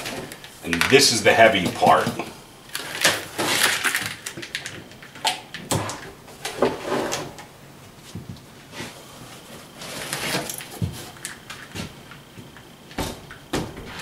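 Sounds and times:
cardboard and foam scraping: 0:08.7 - 0:11.1.

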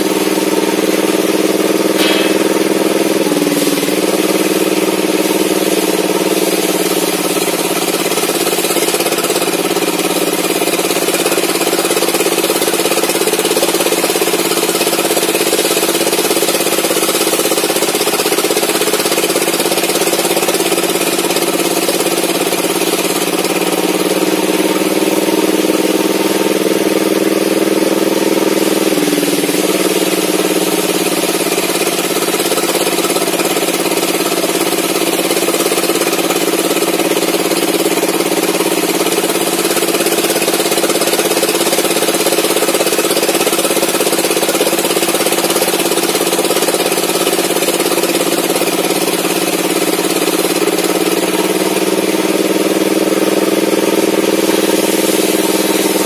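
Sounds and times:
table saw ripping wood: 0:01.8 - 0:16.6.

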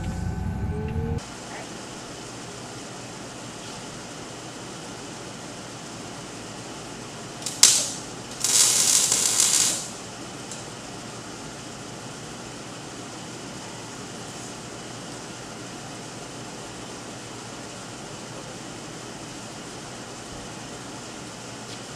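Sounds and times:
shop noise hum: 0:00.0 - 0:21.9
welder crackle and hiss: 0:01.2 - 0:13.1.

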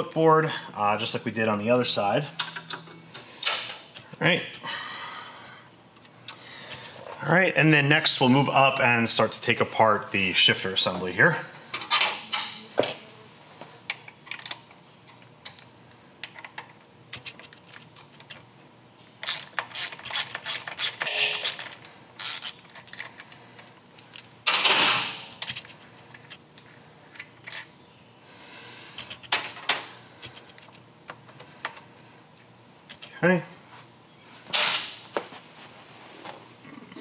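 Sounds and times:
hand ratchet clicking: 0:19.2 - 0:23.2.

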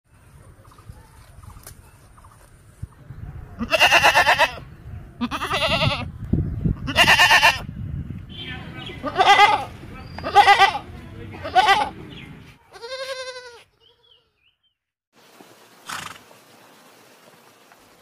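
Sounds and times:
goat bleating loudly: 0:03.6 - 0:04.6, 0:05.2 - 0:06.1, 0:06.8 - 0:07.7, 0:09.0 - 0:12.0, 0:12.7 - 0:14.1
goat kid quavering bleat: 0:03.6 - 0:04.6, 0:05.2 - 0:06.1, 0:06.8 - 0:07.6, 0:09.0 - 0:10.8, 0:12.7 - 0:14.2.

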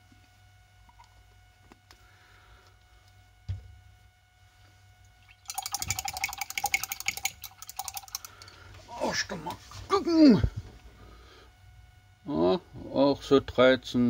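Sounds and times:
thump: 0:03.5 - 0:03.7
paintbrush clinking against glass jar: 0:05.4 - 0:08.6.

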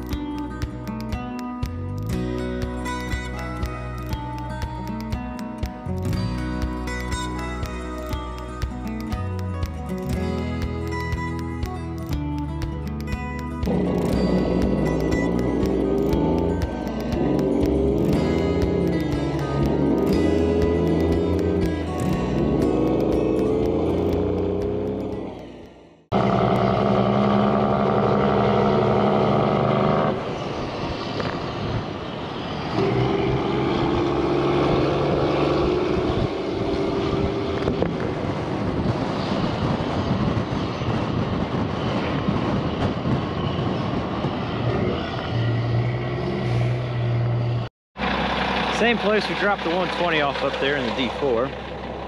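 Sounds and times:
background music: 0:00.0 - 0:26.1
road noise: 0:00.0 - 0:52.0
truck diesel engine running: 0:01.7 - 0:30.3, 0:32.8 - 0:45.0, 0:45.6 - 0:52.0.

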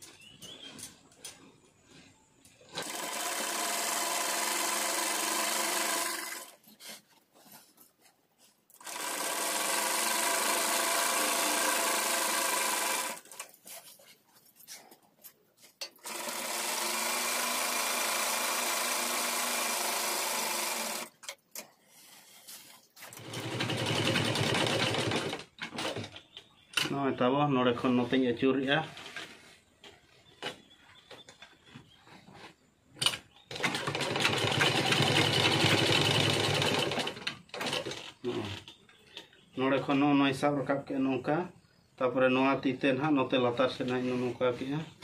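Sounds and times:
sewing machine stitching: 0:02.7 - 0:06.6, 0:08.8 - 0:13.5, 0:16.0 - 0:21.2, 0:23.0 - 0:26.2, 0:33.5 - 0:38.7.

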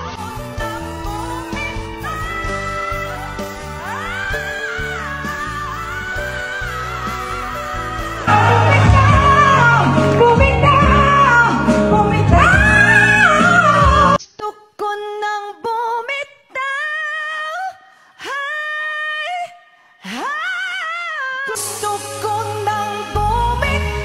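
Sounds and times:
loud backing music: 0:00.0 - 0:14.2, 0:21.6 - 0:24.0
women singing into microphones: 0:00.0 - 0:24.0
woman singing unaccompanied: 0:00.1 - 0:24.0.

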